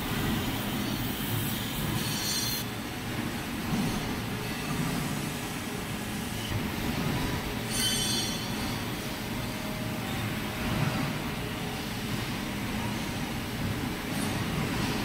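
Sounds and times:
machine shop rumble: 0:00.0 - 0:15.0
metal-on-metal squeal: 0:00.7 - 0:02.6, 0:07.7 - 0:08.9.

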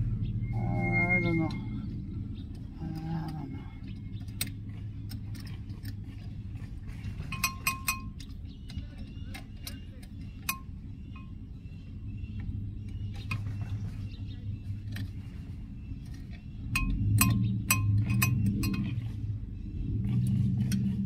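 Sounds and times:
low hum: 0:00.0 - 0:21.0
metal tools clinking: 0:02.8 - 0:11.4, 0:16.1 - 0:19.2.

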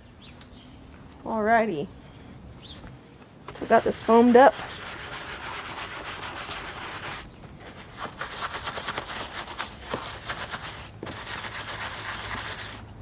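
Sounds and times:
scrub brush scratching leather: 0:03.5 - 0:12.8.

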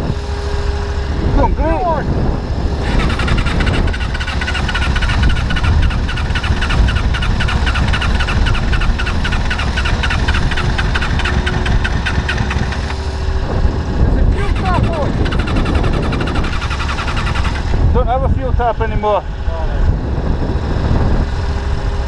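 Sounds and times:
motorcycle engine running: 0:00.0 - 0:22.0
fast regular ticking: 0:02.8 - 0:13.0, 0:14.4 - 0:17.8.

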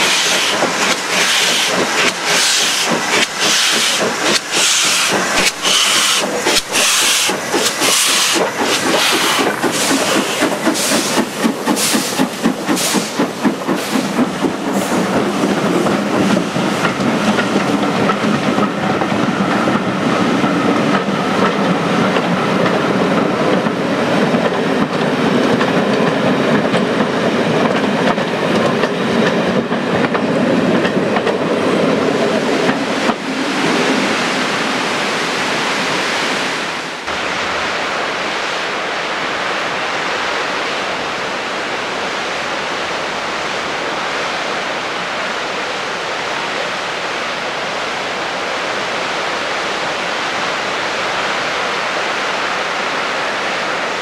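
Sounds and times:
steam hissing: 0:00.0 - 0:26.5
train wheels clattering over rail joints: 0:00.0 - 0:33.4
steam locomotive exhaust beating: 0:00.0 - 0:34.2.

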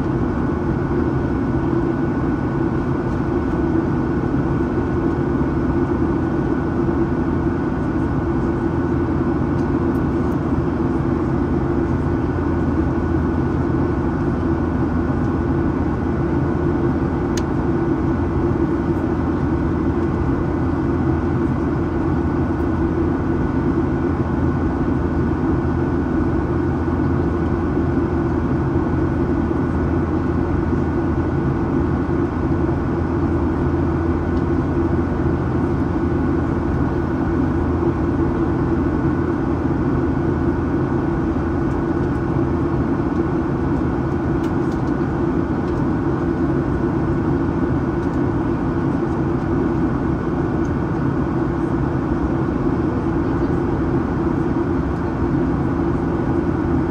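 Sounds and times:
faint constant whine: 0:00.0 - 0:56.9
jet engine drone: 0:00.0 - 0:56.9.

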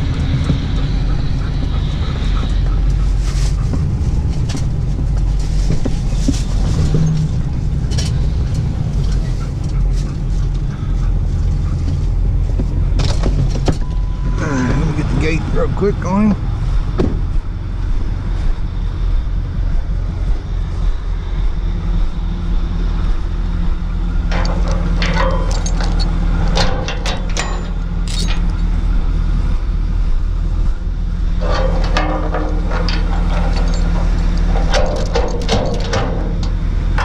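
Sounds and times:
diesel engine idling: 0:00.0 - 0:37.0
metallic clanks and rattles: 0:24.1 - 0:29.0, 0:31.2 - 0:37.0.

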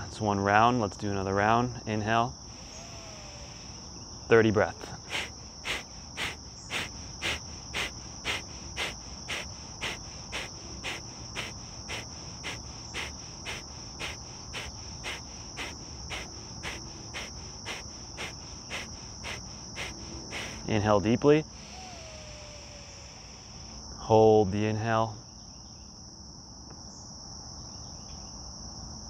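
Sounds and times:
high-pitched insect drone: 0:01.4 - 0:25.9
forceful nasal exhalations: 0:02.5 - 0:04.0, 0:04.6 - 0:23.8.

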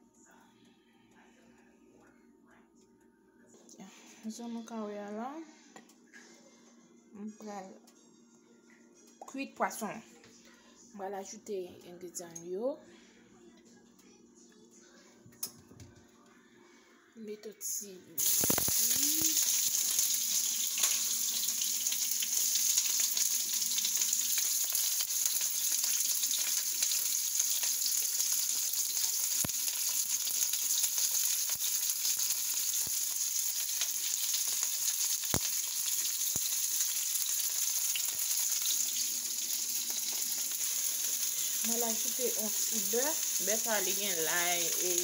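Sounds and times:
onions and peppers sizzling in oil: 0:18.2 - 0:45.0.

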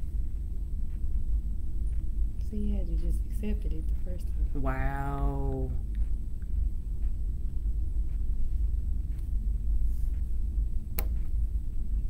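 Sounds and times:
steady low rumble: 0:00.0 - 0:12.0
sharp click: 0:10.9 - 0:11.3.

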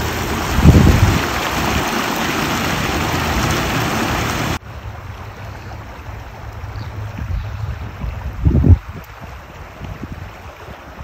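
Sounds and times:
water rushing over ledge: 0:00.0 - 0:07.2
stream rippling: 0:00.0 - 0:11.0.

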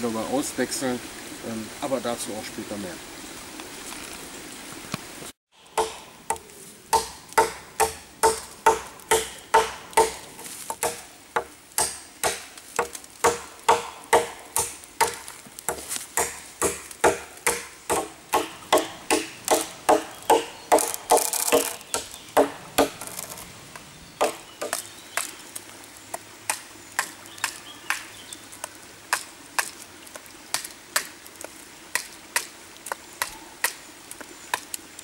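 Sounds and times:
blade chopping into log: 0:05.8 - 0:11.1, 0:11.8 - 0:23.4.

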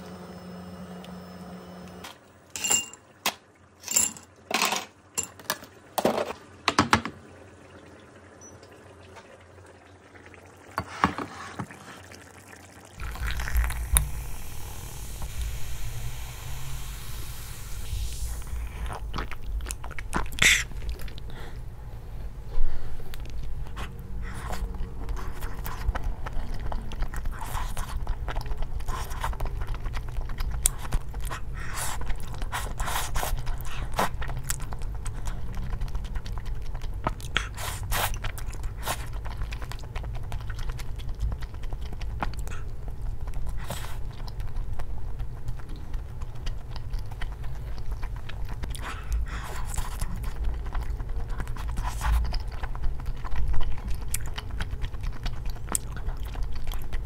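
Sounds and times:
ice cubes clinking into glass: 0:02.6 - 0:03.0
person chewing and slurping noodles: 0:13.0 - 0:21.8, 0:22.6 - 0:57.0
steady low hum: 0:13.0 - 0:57.0.

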